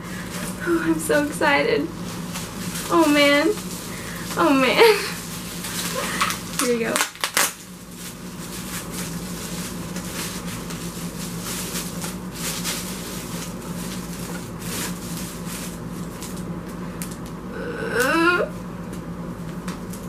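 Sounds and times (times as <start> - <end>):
steady low hum: 0.0 - 20.0
bubble wrap rustling and crinkling: 0.1 - 17.4, 18.5 - 20.0.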